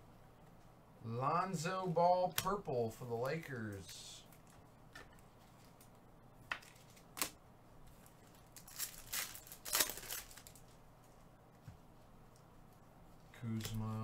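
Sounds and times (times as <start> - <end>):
foil wrappers crinkling and tearing: 8.1 - 10.7.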